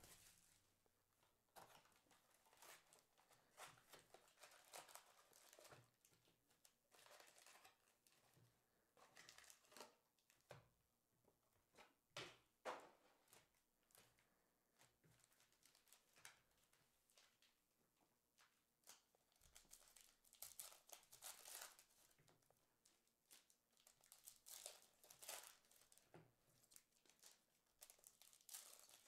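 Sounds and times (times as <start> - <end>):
foil packs crinkling: 1.7 - 6.0, 7.0 - 7.9, 18.8 - 22.1, 22.8 - 29.0.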